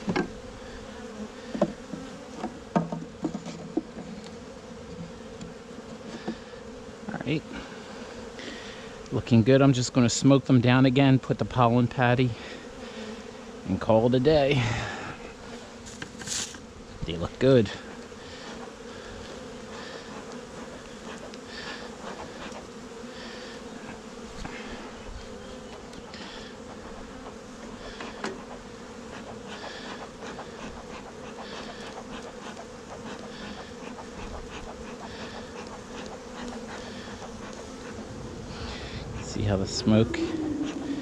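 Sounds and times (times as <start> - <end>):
honeybees humming: 0.0 - 41.0
smoker bellows hissing puffs: 18.2 - 41.0.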